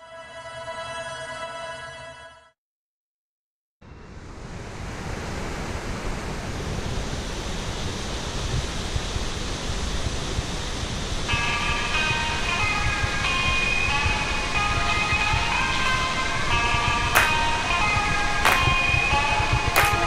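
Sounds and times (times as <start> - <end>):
tune of high clear notes: 11.4 - 20.0.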